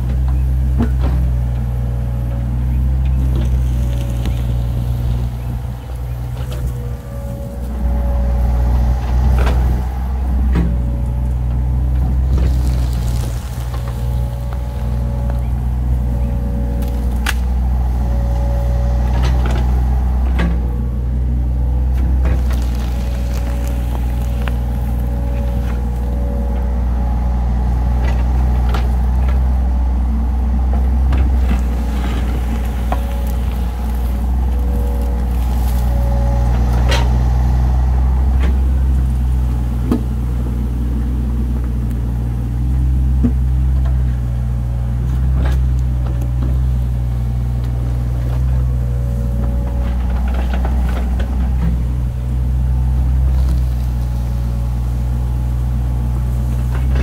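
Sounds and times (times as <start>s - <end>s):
diesel engine running: 0.0s - 57.0s.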